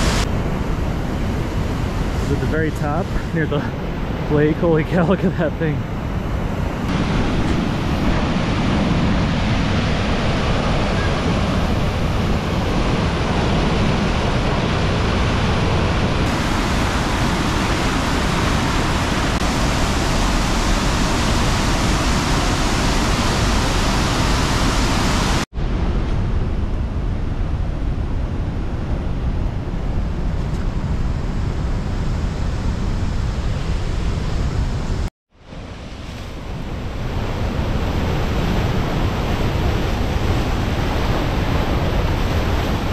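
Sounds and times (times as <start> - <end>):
water rushing down waterfalls: 0.0 - 0.3, 6.8 - 25.5, 35.6 - 42.9.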